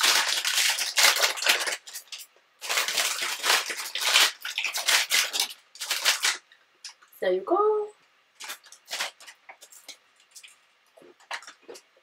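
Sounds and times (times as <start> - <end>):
plastic wrapper crinkling: 0.0 - 7.1, 8.3 - 12.0.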